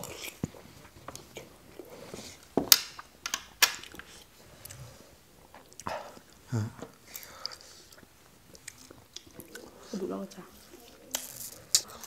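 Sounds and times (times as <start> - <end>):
chewing and mouth noises: 0.0 - 2.4, 5.4 - 6.4, 7.0 - 12.0.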